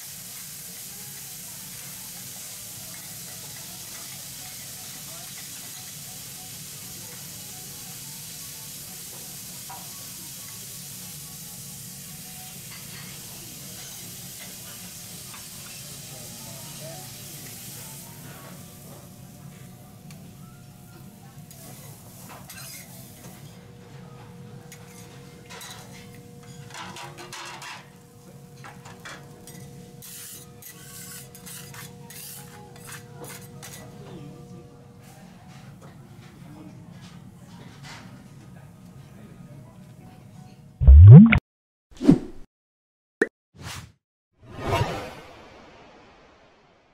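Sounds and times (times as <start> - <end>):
food sizzling on a griddle: 0.0 - 23.6, 27.6 - 34.3
metal spatula scraping griddle: 29.5 - 33.8.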